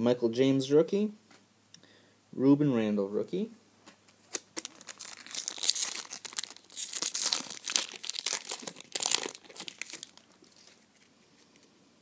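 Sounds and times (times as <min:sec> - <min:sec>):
foil wrapper tearing and crinkling: 0:04.3 - 0:11.1.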